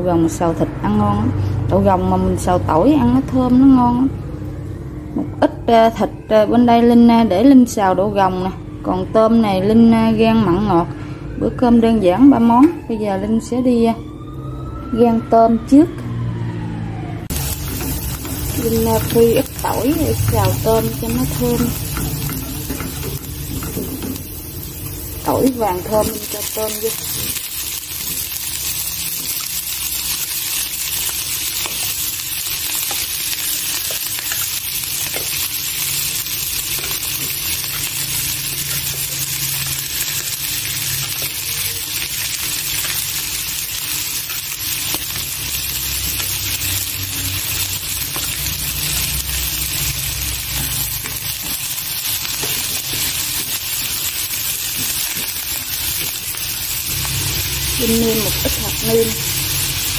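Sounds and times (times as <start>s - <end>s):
shrimp sizzling in hot oil: 17.3s - 59.9s.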